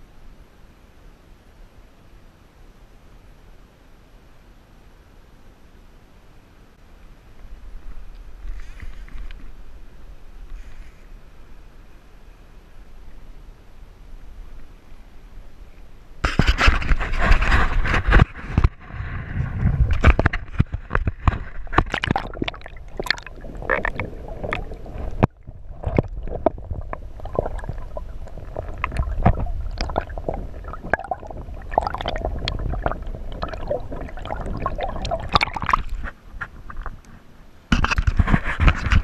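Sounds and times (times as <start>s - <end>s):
water sloshing and gurgling: 16.3s - 37.1s.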